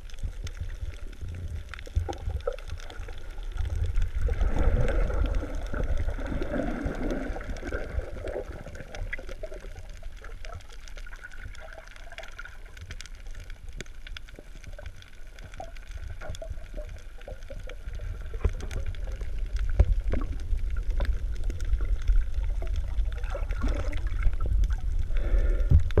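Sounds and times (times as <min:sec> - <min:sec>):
bubbling gurgles: 0:00.0 - 0:26.0
muffled underwater rumble: 0:00.0 - 0:26.0
small scattered clicks: 0:08.8 - 0:23.2.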